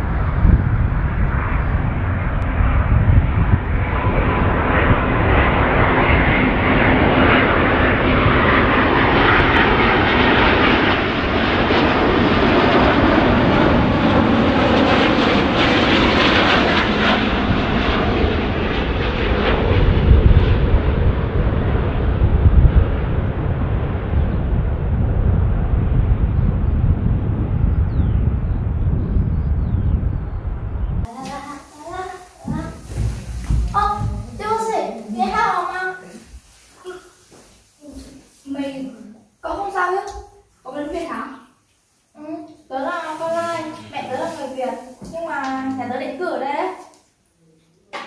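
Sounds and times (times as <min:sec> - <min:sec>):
jet engines roaring with whine: 0:00.0 - 0:34.7.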